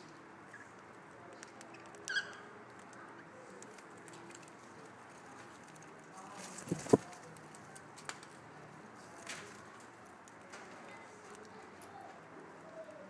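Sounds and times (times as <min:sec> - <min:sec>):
light clicks and scratching: 0:00.0 - 0:13.0
cockatiel chirp: 0:02.0 - 0:02.5.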